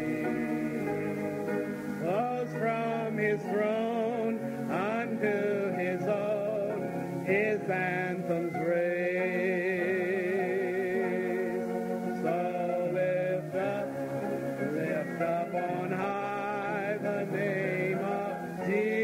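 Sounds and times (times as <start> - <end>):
slow gospel singing: 0.0 - 19.0.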